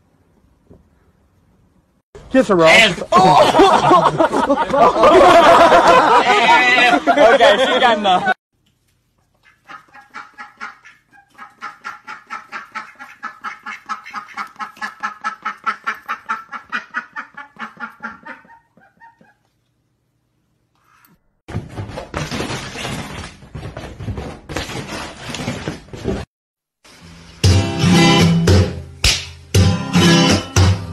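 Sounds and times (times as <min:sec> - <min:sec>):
duck quacking: 0:09.4 - 0:19.4.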